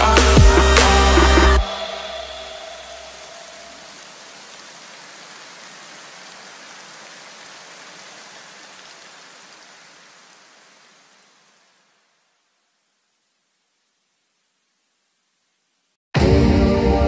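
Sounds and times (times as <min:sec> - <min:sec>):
steady static hiss: 0:00.0 - 0:16.0
background music held notes: 0:16.2 - 0:17.0.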